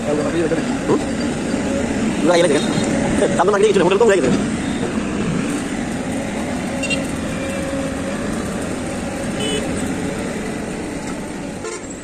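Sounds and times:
excavator diesel engine droning: 0.0 - 12.0.

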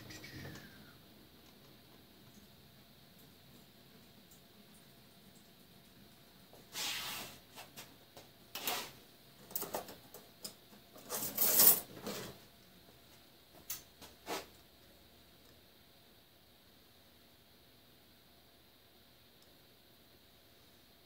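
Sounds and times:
tools clattering on a workbench: 9.4 - 12.4.

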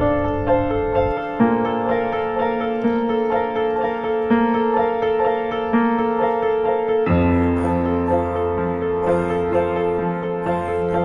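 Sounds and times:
piano background music: 0.0 - 11.0.

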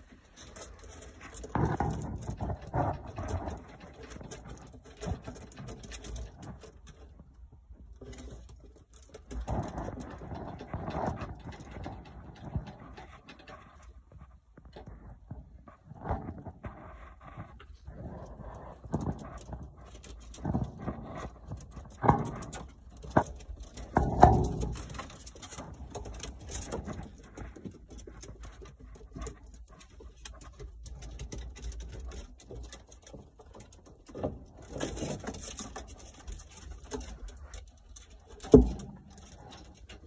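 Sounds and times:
ferrets gnawing wet meat: 0.0 - 6.8
animals scuffling: 0.0 - 40.0.

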